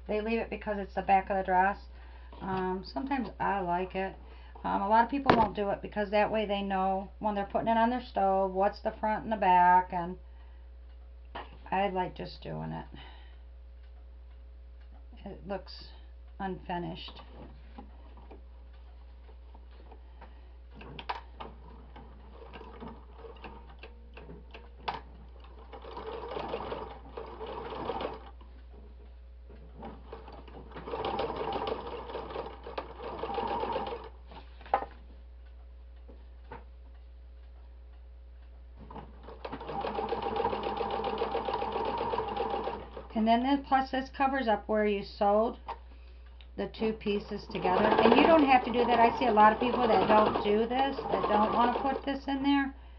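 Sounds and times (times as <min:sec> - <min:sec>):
electric sewing machine running: 0:25.4 - 0:28.3, 0:30.1 - 0:34.1, 0:39.3 - 0:43.1, 0:47.4 - 0:52.2.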